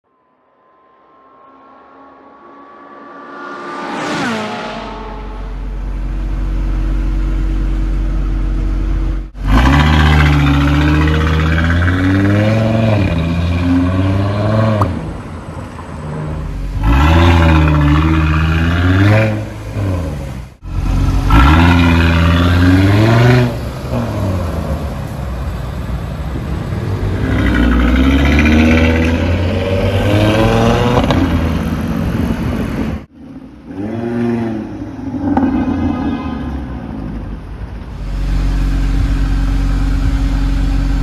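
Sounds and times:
car engine revving loudly: 0:09.4 - 0:15.1, 0:16.8 - 0:24.8, 0:26.8 - 0:32.5.

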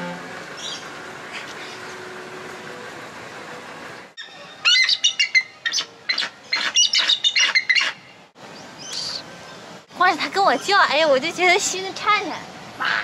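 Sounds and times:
eagle shrill chirping calls: 0:04.2 - 0:08.0.

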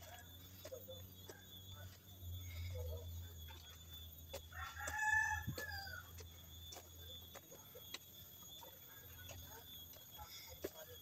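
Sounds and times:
rooster crowing: 0:04.5 - 0:06.2.

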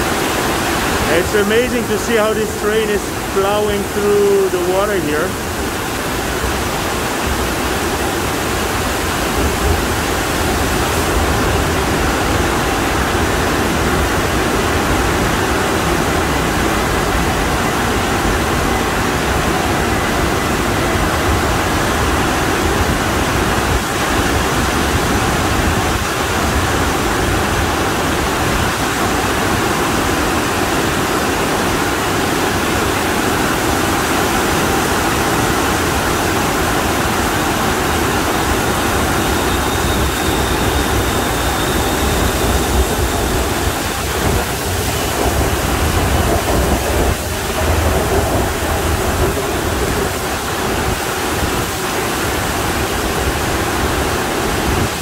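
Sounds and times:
heavy rain pouring: 0:00.0 - 0:55.0.

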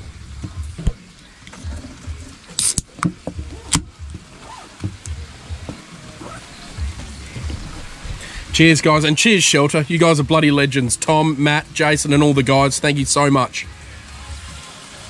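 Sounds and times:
beer can cracking open with fizz: 0:00.3 - 0:05.2.

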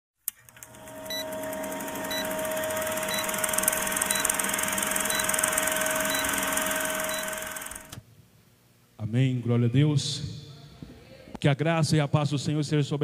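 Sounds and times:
film projector rattle: 0:00.4 - 0:08.0
steady hum: 0:00.5 - 0:08.9
short high beep: 0:06.0 - 0:07.5.

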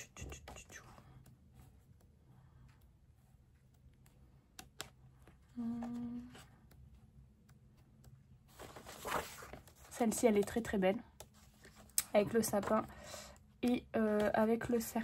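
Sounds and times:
book pages flipping: 0:02.7 - 0:12.9
woman humming: 0:05.5 - 0:06.5.

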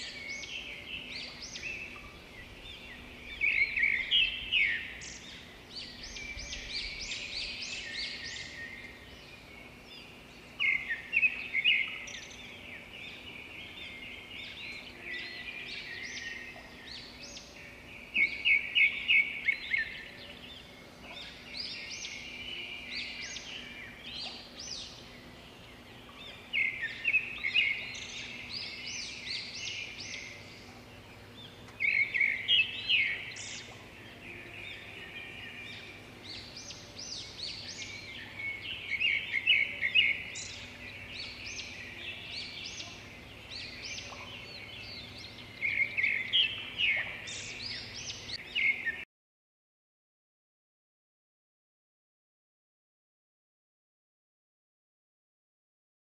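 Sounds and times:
birds chirping: 0:00.0 - 0:49.0.

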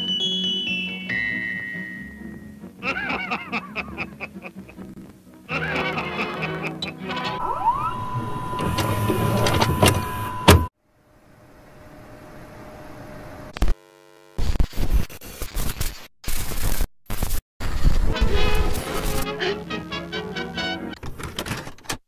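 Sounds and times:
sliding tones: 0:07.0 - 0:10.7
steady high beep: 0:07.3 - 0:10.7
bursts of static: 0:13.4 - 0:19.6.

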